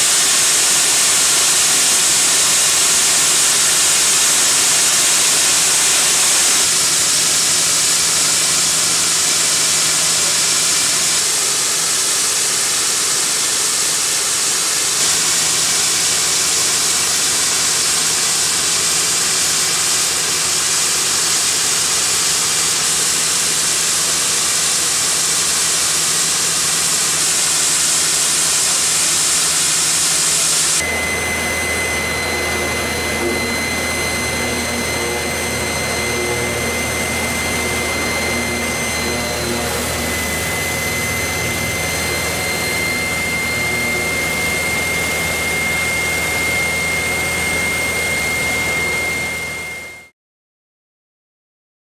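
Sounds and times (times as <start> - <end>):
machine hum with high whine: 0.0 - 50.1
hiss of water jets: 24.9 - 30.8.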